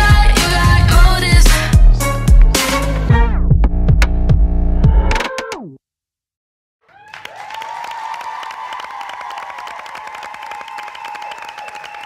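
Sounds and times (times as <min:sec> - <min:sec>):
audience clapping and cheering: 0:06.9 - 0:12.0
high-pitched cheering scream: 0:06.9 - 0:12.0.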